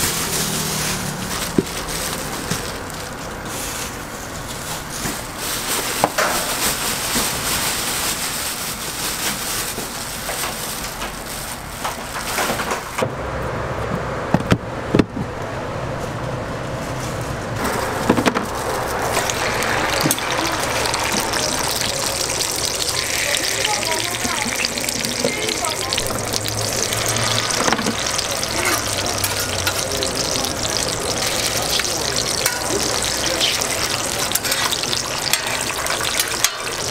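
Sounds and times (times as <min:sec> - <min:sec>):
patties sizzling on griddle: 0:00.0 - 0:03.0, 0:17.6 - 0:36.9
hands rustling through cabbage: 0:00.0 - 0:12.6, 0:16.8 - 0:31.5.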